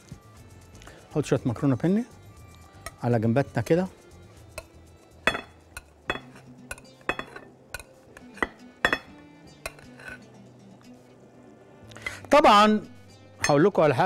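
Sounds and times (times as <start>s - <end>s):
soft background music: 0.0s - 14.0s
metal spoon clinking on glass bowl: 5.3s - 10.2s.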